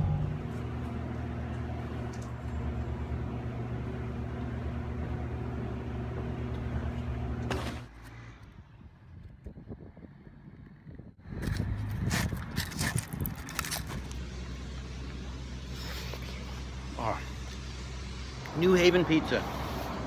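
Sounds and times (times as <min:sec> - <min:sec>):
machine hum: 0:00.0 - 0:07.9.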